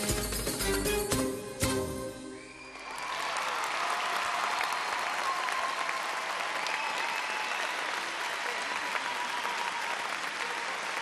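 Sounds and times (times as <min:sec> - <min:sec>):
audience applauding: 0:02.4 - 0:11.0.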